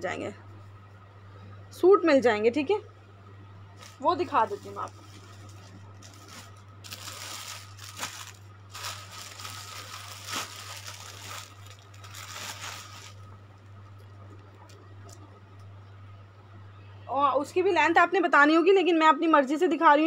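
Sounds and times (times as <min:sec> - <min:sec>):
clothes rustling: 0:03.8 - 0:13.3.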